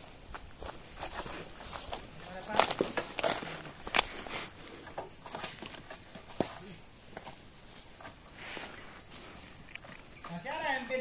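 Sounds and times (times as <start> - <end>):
high-pitched insect chorus: 0.0 - 11.0.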